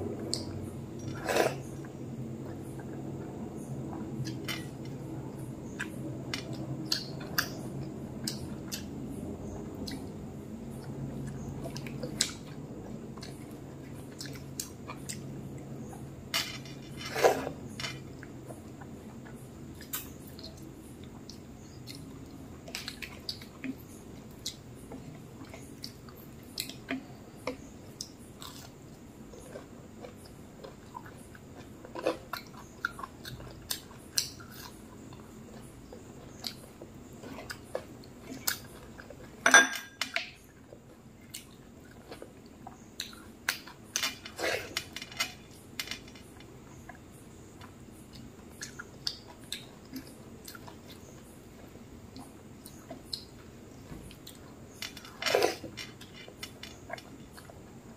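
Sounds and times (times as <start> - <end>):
chewing: 18.1 - 39.4, 46.2 - 57.9.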